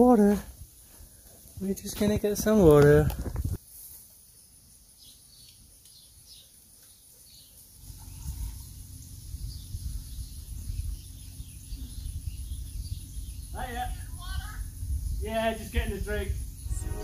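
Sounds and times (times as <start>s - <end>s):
high insect drone: 7.3s - 17.0s
low uneven rumble: 7.8s - 17.0s.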